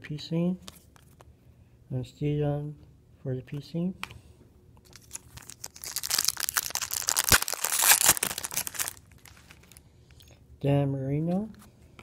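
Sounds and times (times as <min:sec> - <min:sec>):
foil wrapper tearing and crinkling: 0:04.9 - 0:09.8.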